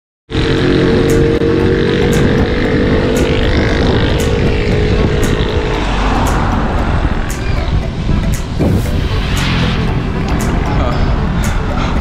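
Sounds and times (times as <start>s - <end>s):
rough road noise: 0.3s - 12.0s
vehicle engine droning: 0.3s - 12.0s
wind noise: 0.5s - 12.0s.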